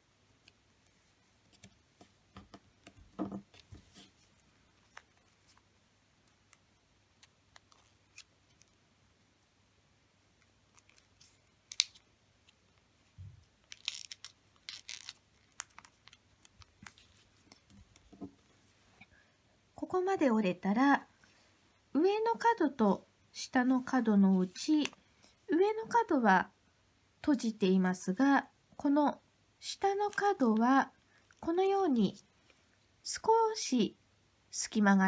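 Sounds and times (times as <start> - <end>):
crisp paper click: 10.4 - 12.6
paper crinkling: 10.4 - 12.8, 13.6 - 18.1.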